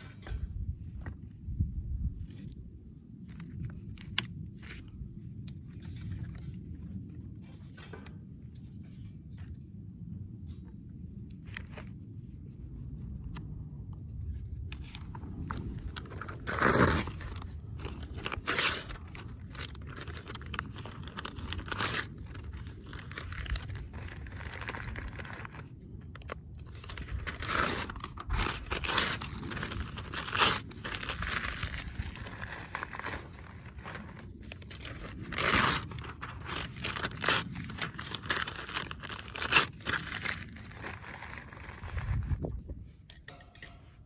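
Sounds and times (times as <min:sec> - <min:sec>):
paper tearing and crumpling: 0:16.0 - 0:42.3.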